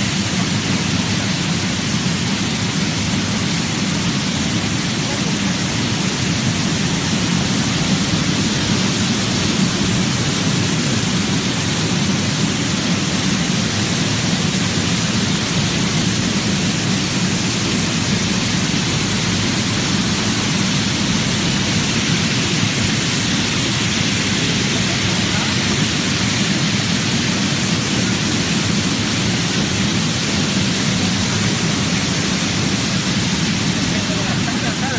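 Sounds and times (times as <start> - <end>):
low machine hum: 0.0 - 34.9
water spraying into tank: 0.0 - 34.9.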